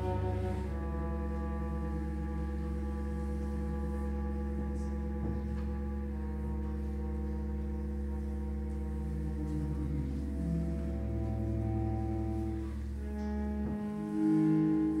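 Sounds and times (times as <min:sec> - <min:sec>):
steady low drone: 0:00.0 - 0:15.0
sustained held chords: 0:00.0 - 0:15.0.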